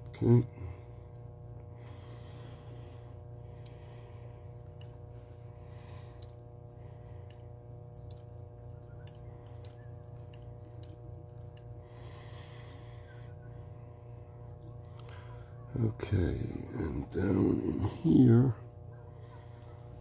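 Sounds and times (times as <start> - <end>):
steady low hum: 0.0 - 20.0
small metallic clicks: 6.0 - 11.7.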